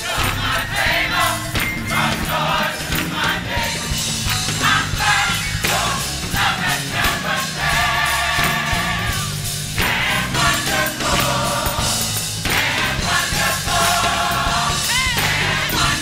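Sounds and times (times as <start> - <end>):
drums and cymbals: 0.0 - 16.0
gospel choir singing: 0.0 - 16.0
live band playing: 0.0 - 16.0.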